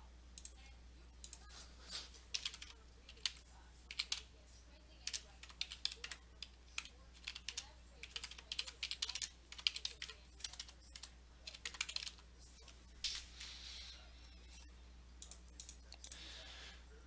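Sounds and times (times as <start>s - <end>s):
keyboard typing: 1.2s - 1.5s, 2.2s - 4.3s, 5.0s - 13.6s, 14.4s - 16.2s.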